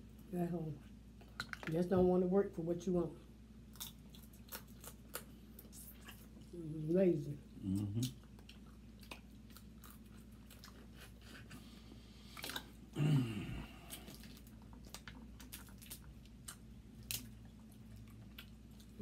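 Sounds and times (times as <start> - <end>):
chewing and smacking: 0.8 - 1.9, 3.6 - 6.6, 7.6 - 12.9, 13.8 - 19.0
low hum of voice: 6.4 - 8.2, 13.0 - 14.1.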